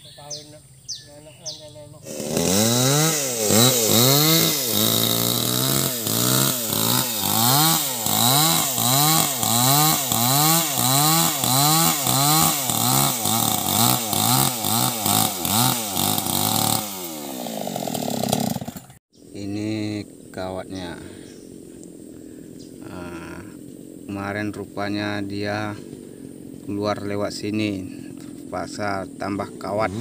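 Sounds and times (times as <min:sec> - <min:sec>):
chainsaw cutting log: 0:02.0 - 0:19.0.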